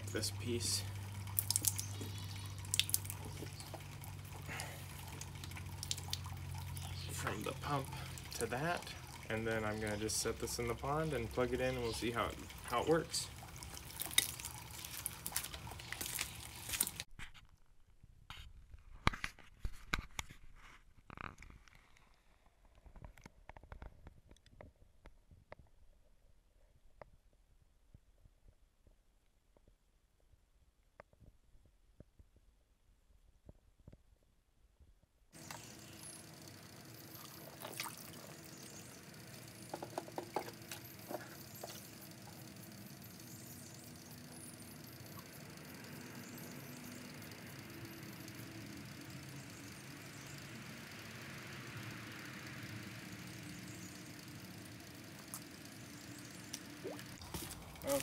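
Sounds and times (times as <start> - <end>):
water dripping and splashing: 0.0 - 17.1, 35.4 - 47.6, 56.3 - 58.0
faint clicks and knocks: 39.3 - 42.4.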